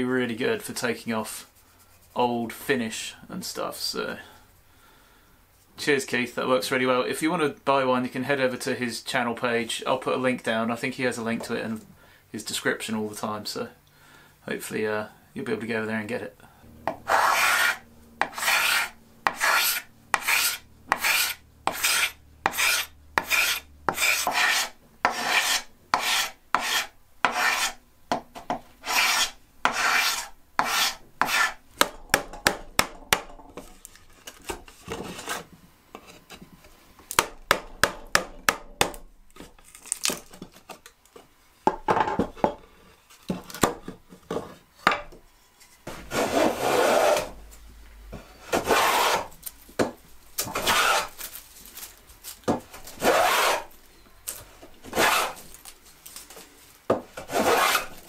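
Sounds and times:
hand plane strokes on wood: 0:16.8 - 0:27.8, 0:28.8 - 0:31.6, 0:46.0 - 0:47.4, 0:48.5 - 0:49.3, 0:50.5 - 0:51.2, 0:53.0 - 0:53.7, 0:54.9 - 0:55.4, 0:57.2 - 0:58.0
hand scraper scraping wood: 0:16.8 - 0:27.8, 0:28.8 - 0:32.6, 0:45.9 - 0:47.4, 0:48.3 - 0:51.4, 0:52.4 - 0:53.7, 0:54.8 - 0:55.7, 0:57.1 - 0:58.0.

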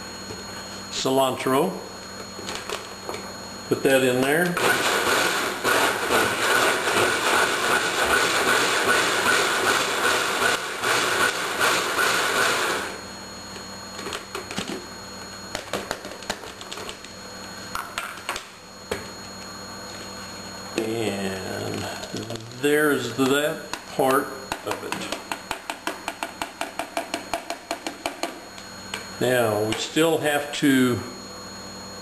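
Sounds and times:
blender running: 0:04.0 - 0:13.4.

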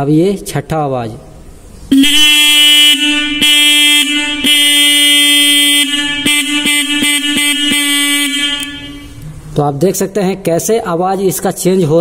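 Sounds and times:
electric horn blaring: 0:01.9 - 0:09.2.

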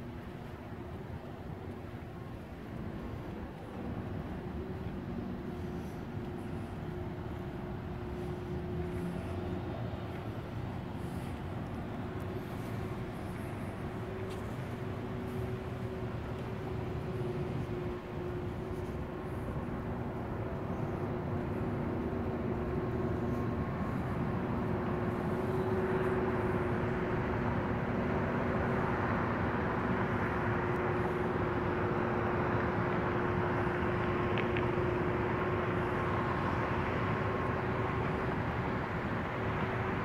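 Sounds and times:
low machine hum: 0:00.0 - 0:40.0
rushing city traffic: 0:00.0 - 0:40.0.

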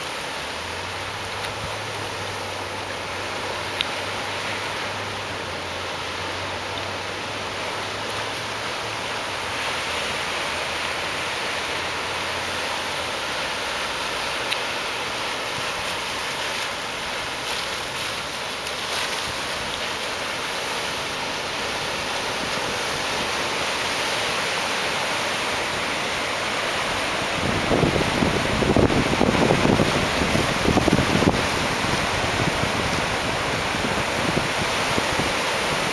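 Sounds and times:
waves breaking: 0:00.0 - 0:35.9
wind gusts hitting microphone: 0:25.5 - 0:35.9.

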